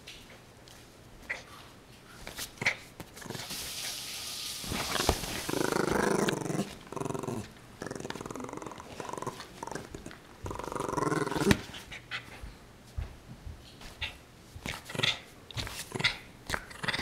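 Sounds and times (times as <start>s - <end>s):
puppy growling in play: 2.6s - 3.7s, 4.7s - 12.3s, 14.6s - 17.0s.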